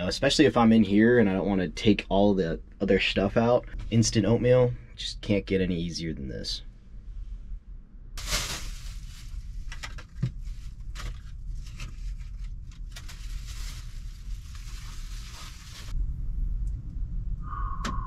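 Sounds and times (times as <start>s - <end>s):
packet crackling and tearing: 8.2s - 10.0s, 10.8s - 15.9s
strong wind buffeting: 15.9s - 18.0s.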